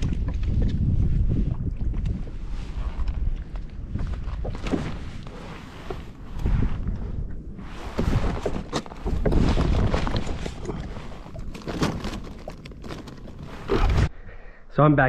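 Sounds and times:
water around kayak hull: 0.0s - 14.1s
wind rumbling on microphone: 0.0s - 14.1s
fabric bag rustling and zipping: 7.7s - 14.1s.

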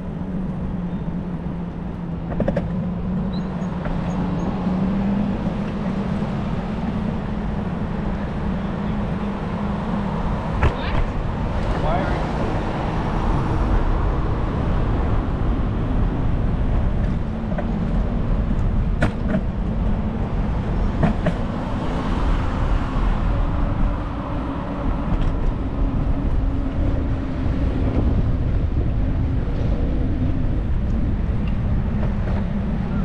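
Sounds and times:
car traffic: 0.0s - 33.0s
wind and road noise: 0.0s - 33.0s.

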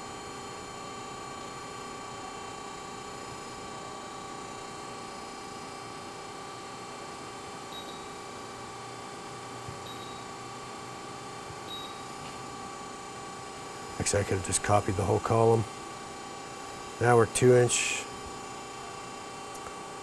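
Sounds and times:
steady machine hum: 0.0s - 20.0s
short high beeps: 9.9s - 10.3s, 11.7s - 12.0s.

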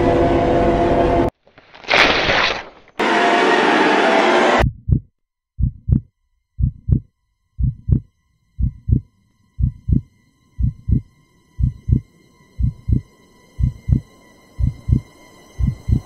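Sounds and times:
heartbeat thumps: 4.6s - 16.0s.

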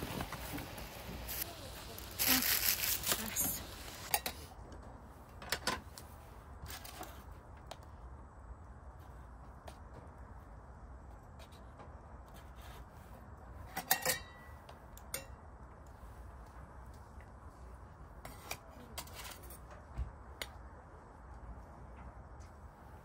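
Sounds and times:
dishes and utensils clinking: 13.7s - 15.4s.

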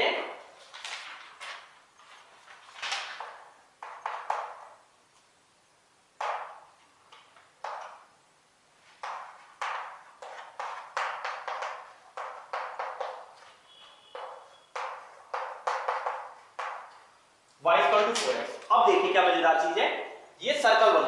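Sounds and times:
chalk tapping on blackboard: 3.2s - 4.8s, 6.2s - 8.0s, 9.0s - 17.1s.

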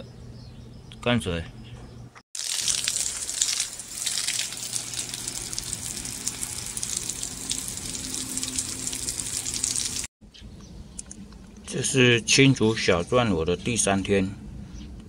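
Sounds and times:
water gushing onto soil: 2.4s - 10.1s.

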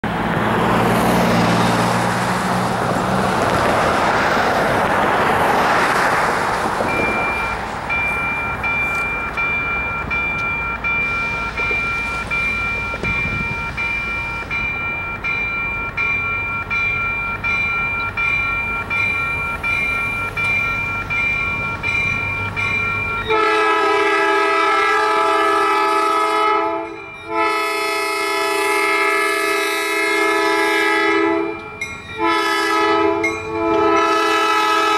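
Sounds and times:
road noise: 0.0s - 34.9s
electronic crossing bell ringing: 6.9s - 23.7s, 26.7s - 27.6s, 31.4s - 32.5s, 33.2s - 34.2s
locomotive horn blasts: 23.3s - 34.9s.

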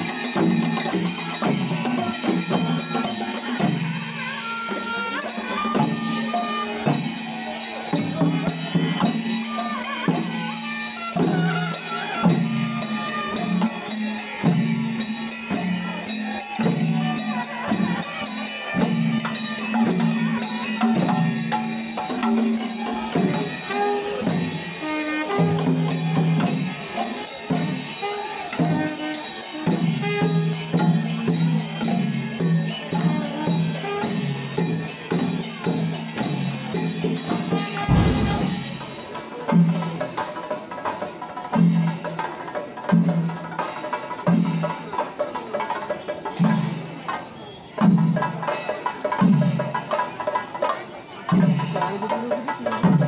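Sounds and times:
jingling cymbals: 0.0s - 42.0s, 48.5s - 53.0s
drums: 0.0s - 53.0s
held low notes: 37.9s - 38.9s.

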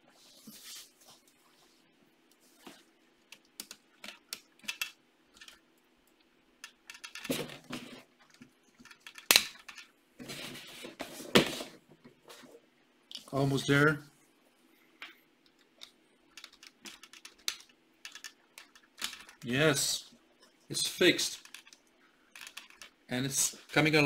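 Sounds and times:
plastic pieces clicking and rattling: 3.6s - 5.6s, 6.6s - 7.5s, 8.3s - 9.9s, 15.7s - 19.5s, 21.2s - 23.0s
plastic pieces snapping: 8.8s - 9.9s, 15.8s - 19.4s.

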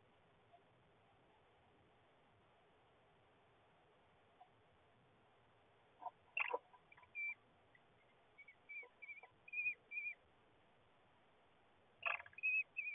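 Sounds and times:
kestrel whistle-like calls: 6.0s - 7.4s, 8.0s - 10.2s, 12.0s - 12.9s.

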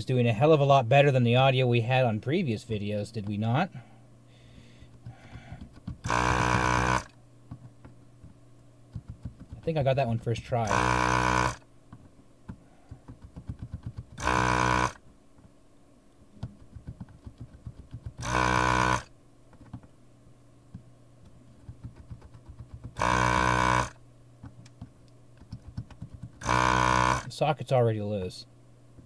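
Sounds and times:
vacuum pump humming: 3.2s - 15.6s, 16.3s - 19.9s, 20.7s - 27.6s.

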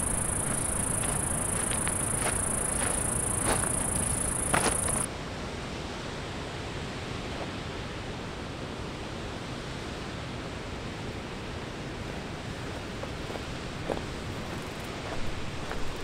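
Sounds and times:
high insect buzz: 0.0s - 5.1s.

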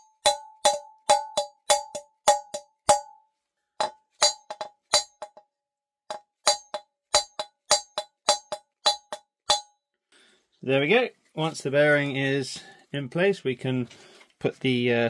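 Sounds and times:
hammer tapping metal: 0.0s - 3.2s, 3.8s - 5.4s, 6.1s - 9.8s.

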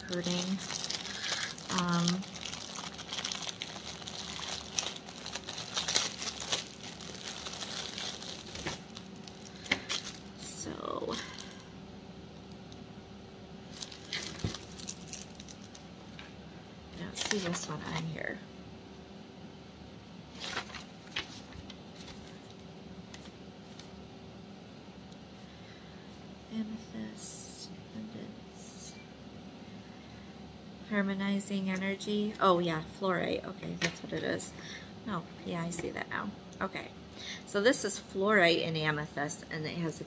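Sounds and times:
plastic bag crinkling: 0.0s - 11.6s, 13.7s - 15.9s, 17.0s - 18.0s, 20.4s - 22.7s
faint steady hum: 0.0s - 40.0s.

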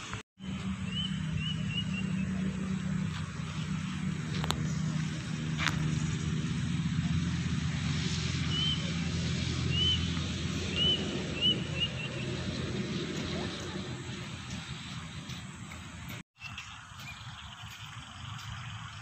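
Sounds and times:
low engine drone: 0.0s - 16.2s
bird chirping: 0.4s - 2.8s, 9.6s - 12.5s, 16.4s - 18.8s.

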